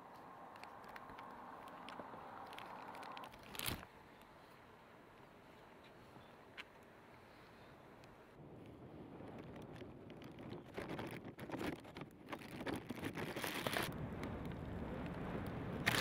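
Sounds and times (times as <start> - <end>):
gusty wind on microphone: 8.4 - 16.0.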